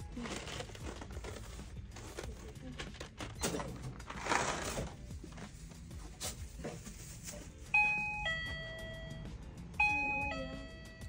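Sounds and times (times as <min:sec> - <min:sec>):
two-note electronic door chime: 0:07.8 - 0:11.0.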